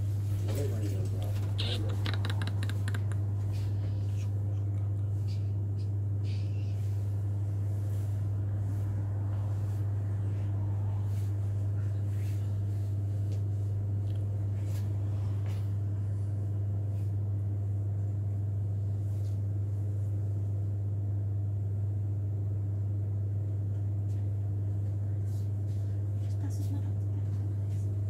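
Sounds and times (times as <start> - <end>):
steady low hum: 0.0 - 28.0.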